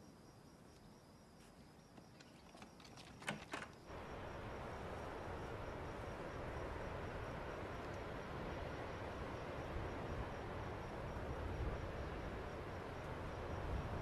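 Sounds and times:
outdoor ambience hiss: 0.0 - 14.0.

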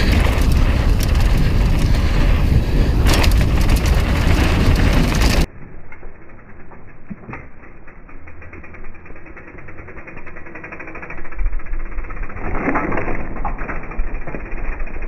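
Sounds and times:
wind on microphone: 0.0 - 5.5
bike landing a jump: 0.0 - 5.6
bike tyres on dirt: 0.0 - 15.0.

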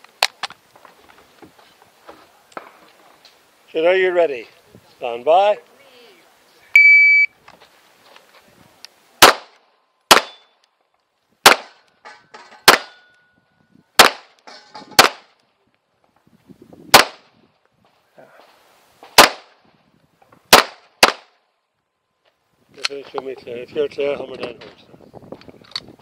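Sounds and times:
loud pistol shots: 9.2 - 10.5, 11.4 - 11.8, 12.6 - 13.0, 14.0 - 14.3, 15.0 - 15.3, 16.9 - 17.3, 19.2 - 19.5, 20.5 - 21.3.

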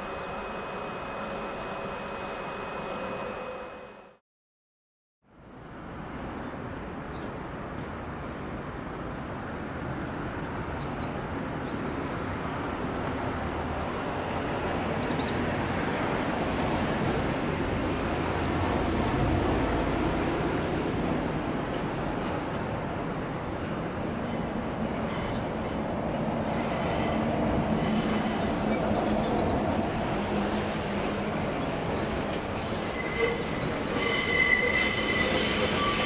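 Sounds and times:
locomotive rumbling: 18.6 - 36.0.

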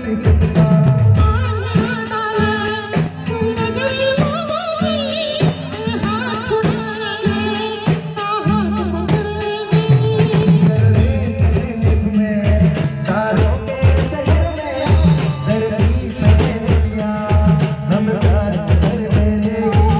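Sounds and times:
band playing through loudspeakers: 0.0 - 19.9
bass drums beating: 0.0 - 19.9.

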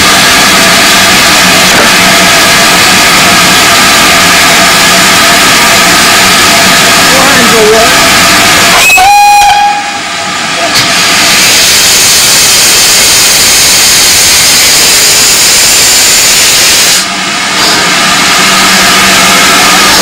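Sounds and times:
steam hissing from locomotive: 9.5 - 20.0.

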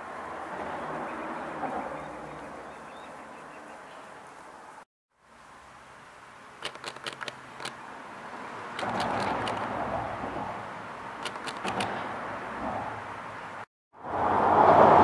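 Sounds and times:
road traffic passing: 0.0 - 15.0
sharp ticks: 6.6 - 7.8, 8.8 - 9.8, 11.2 - 12.0.

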